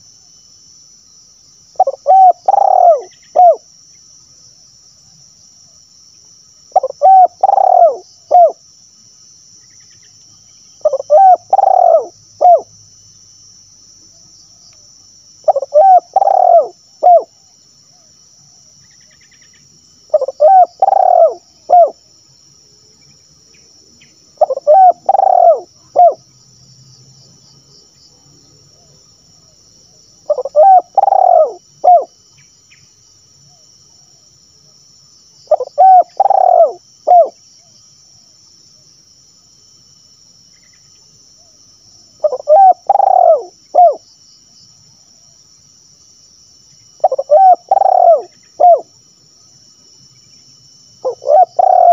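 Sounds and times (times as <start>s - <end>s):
dove cooing: 1.8s - 3.6s, 6.7s - 8.6s, 10.8s - 12.7s, 15.4s - 17.3s, 20.1s - 22.0s, 24.4s - 26.2s, 30.3s - 32.1s, 35.5s - 37.4s, 42.2s - 44.0s, 47.0s - 48.9s, 51.0s - 51.9s.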